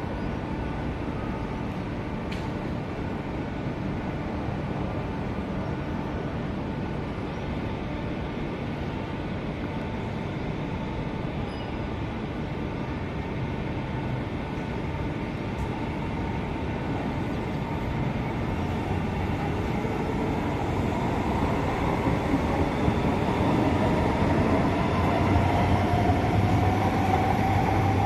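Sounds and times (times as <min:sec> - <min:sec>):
electric train accelerating: 0:15.5 - 0:28.0.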